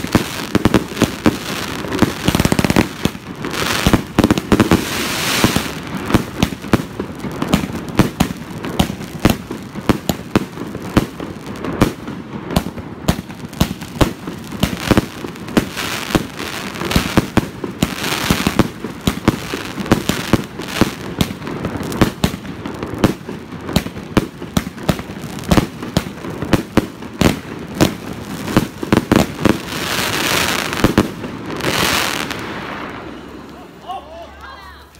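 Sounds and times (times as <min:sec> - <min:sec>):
fireworks hissing: 0:00.0 - 0:09.5
fireworks popping and banging: 0:00.0 - 0:33.5.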